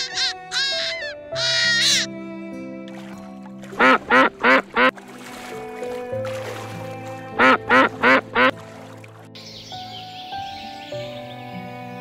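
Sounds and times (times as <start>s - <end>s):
duck-like quacking: 0.0s - 2.1s, 3.8s - 4.9s, 7.4s - 8.5s
soft background music: 0.0s - 12.0s.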